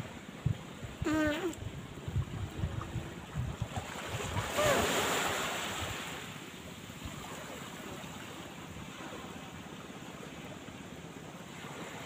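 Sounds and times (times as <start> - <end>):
wind buffeting microphone: 0.0 - 6.2
small waves washing on sand: 0.0 - 12.0.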